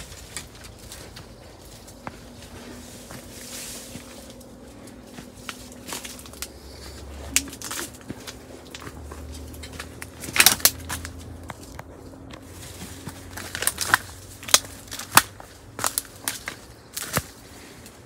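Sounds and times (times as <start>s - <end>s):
footsteps crunching dry stalks: 0.0s - 18.0s.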